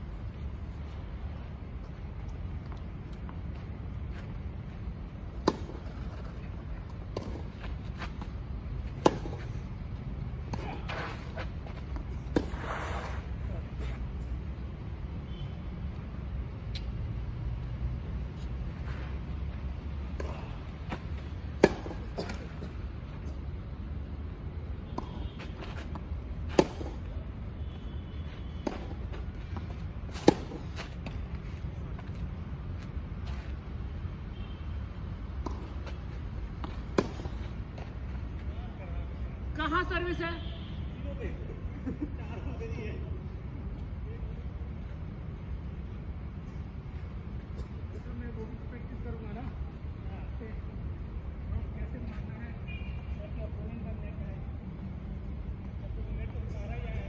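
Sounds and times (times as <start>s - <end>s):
racket hitting tennis ball: 5.4s - 6.4s, 8.9s - 9.5s, 20.2s - 22.7s, 26.4s - 27.1s, 28.6s - 31.2s, 36.6s - 37.5s
tennis ball struck by racket: 21.5s - 22.4s, 26.5s - 27.0s, 30.1s - 30.8s.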